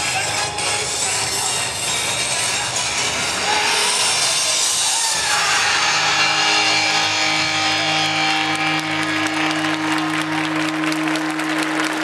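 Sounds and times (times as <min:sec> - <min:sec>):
dance music held chord: 0:00.0 - 0:12.0
audience applause: 0:05.1 - 0:12.0.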